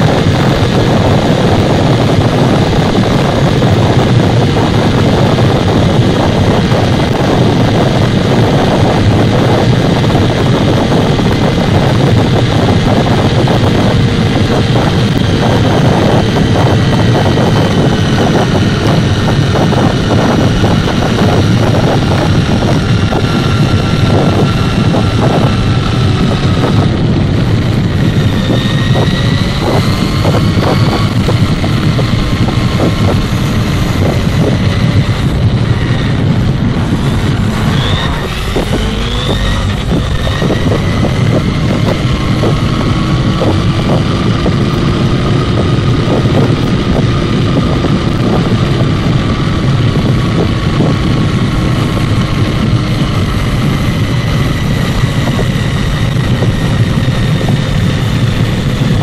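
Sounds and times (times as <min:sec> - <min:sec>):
tyre and wind noise: 0:00.0 - 0:59.0
electric motor whine: 0:19.4 - 0:59.0.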